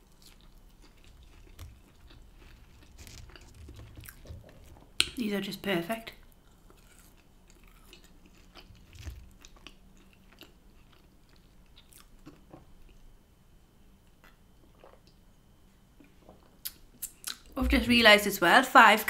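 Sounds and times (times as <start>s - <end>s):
chewing chips: 0.0s - 5.1s, 6.2s - 13.0s.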